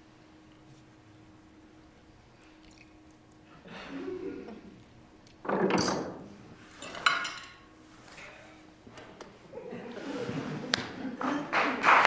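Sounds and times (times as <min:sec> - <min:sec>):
tableware clink: 0:06.8 - 0:08.4.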